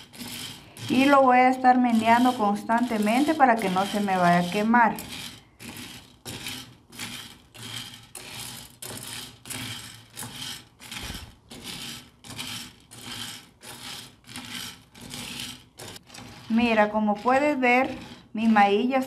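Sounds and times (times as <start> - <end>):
corn kernels rattling in metal pan: 0.0 - 19.0
wooden spoon stirring: 0.0 - 19.0.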